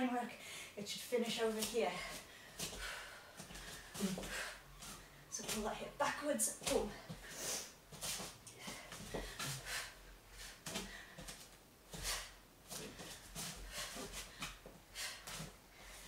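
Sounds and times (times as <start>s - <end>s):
clothing rustles from kicks: 6.6s - 16.0s.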